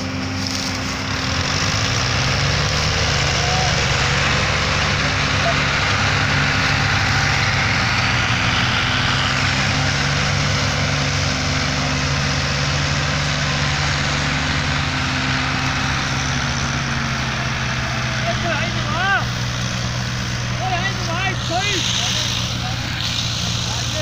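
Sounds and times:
diesel tractors running under load: 0.0s - 24.0s.

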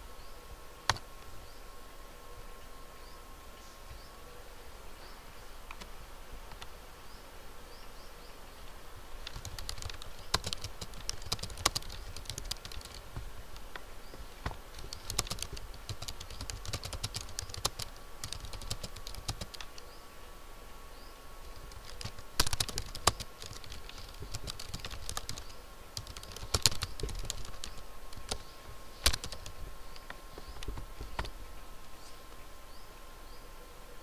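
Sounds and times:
typing on a computer keyboard: 9.2s - 13.1s, 14.8s - 19.8s, 21.6s - 28.4s, 29.0s - 29.6s.

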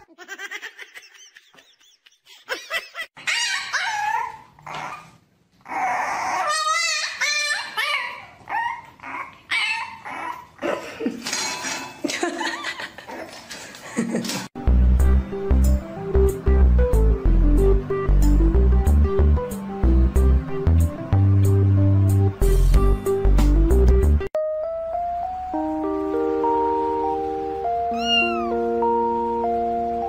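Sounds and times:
dog whining and yipping: 3.2s - 10.6s, 27.9s - 28.6s.

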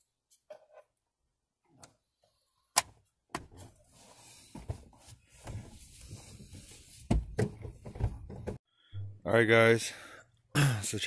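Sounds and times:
rustling with soft knocks: 3.5s - 8.6s.

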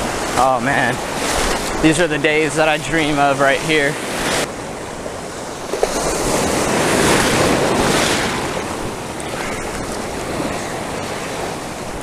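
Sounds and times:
ocean surf breaking: 0.0s - 12.0s.

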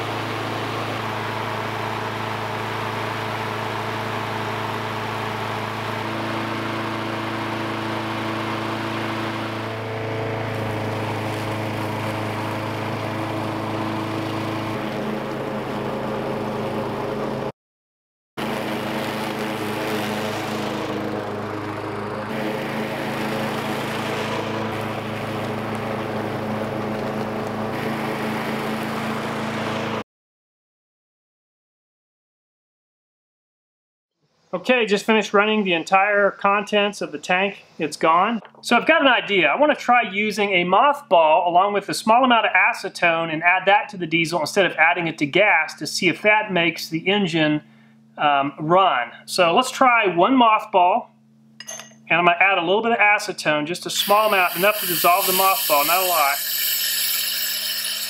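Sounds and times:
lawn mower engine running: 0.0s - 17.5s, 18.4s - 30.0s, 53.9s - 56.7s.

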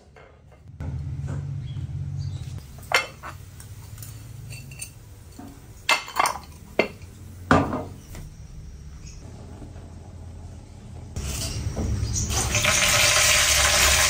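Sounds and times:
dishes and cutlery clinking: 2.8s - 8.0s.

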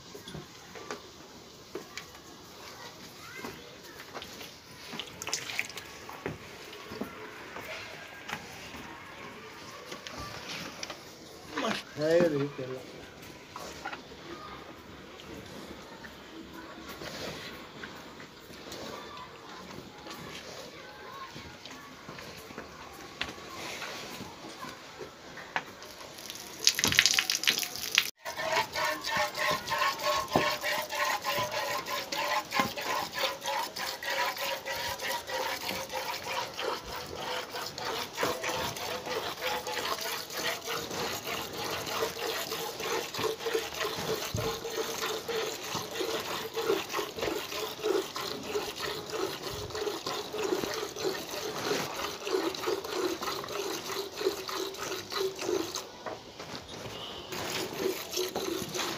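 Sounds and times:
milk squirting into steel bucket: 4.9s - 6.0s, 25.8s - 55.9s, 57.3s - 58.9s.

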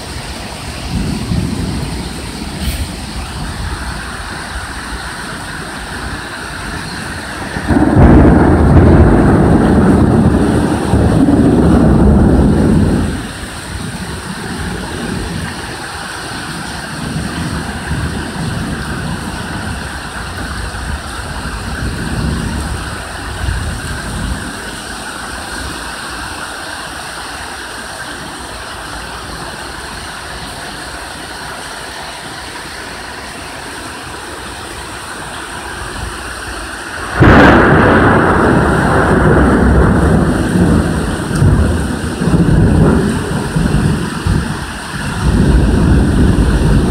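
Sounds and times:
rolling thunder: 0.0s - 26.2s, 35.7s - 46.9s
steady rain: 0.0s - 46.9s.

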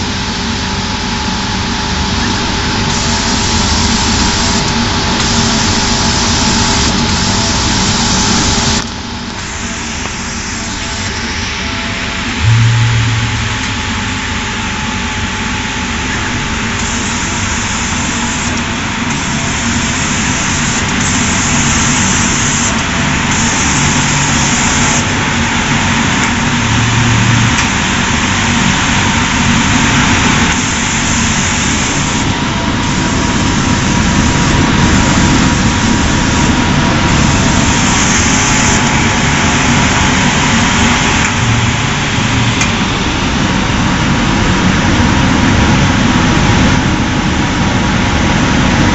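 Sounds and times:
machine hiss and hum: 0.0s - 48.9s
short low hums: 9.4s - 14.8s, 16.8s - 29.9s, 40.7s - 43.8s
higher hiss: 16.7s - 43.0s.

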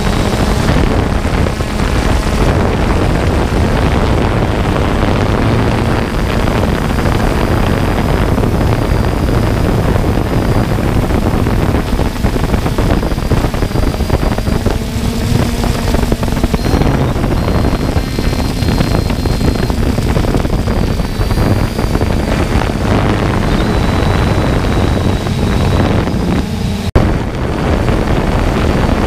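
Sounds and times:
drone motors and propellers: 0.0s - 29.0s
faint high whine: 0.0s - 29.0s
wind rushing over microphone: 0.0s - 29.0s.

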